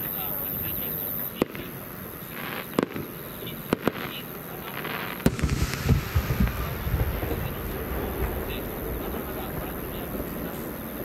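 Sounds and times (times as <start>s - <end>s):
firework shells bangs: 4.8s - 11.0s
low rolling rumble: 5.3s - 11.0s.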